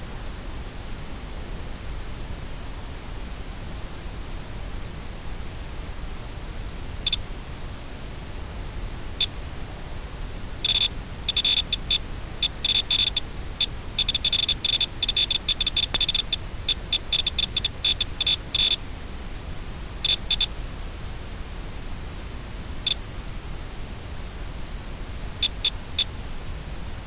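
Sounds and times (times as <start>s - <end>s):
steady hiss: 0.0s - 27.0s
short high-pitched electronic beeps: 10.6s - 13.2s, 14.0s - 18.8s, 20.0s - 20.5s, 25.4s - 25.7s.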